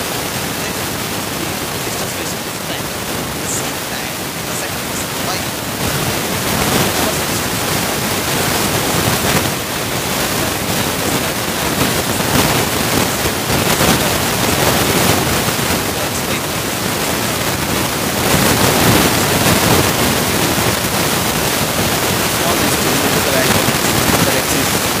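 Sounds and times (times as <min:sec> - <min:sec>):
faint man's voice: 0:00.0 - 0:25.0
loud steady hiss: 0:00.0 - 0:25.0.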